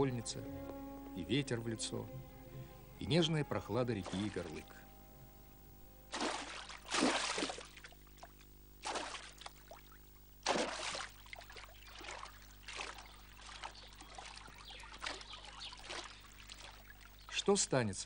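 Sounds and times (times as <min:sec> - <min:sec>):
water splashing: 0:04.0 - 0:04.8, 0:06.1 - 0:17.6.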